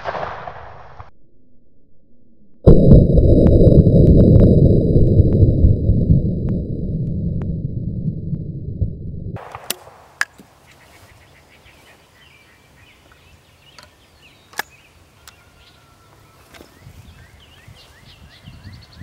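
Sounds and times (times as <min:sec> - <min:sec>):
deep muffled rumble: 0:02.5 - 0:09.4
birds chirping: 0:10.0 - 0:19.0.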